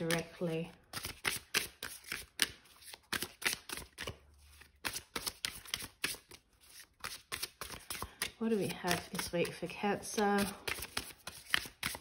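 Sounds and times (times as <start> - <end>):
cards being shuffled: 0.0 - 12.0.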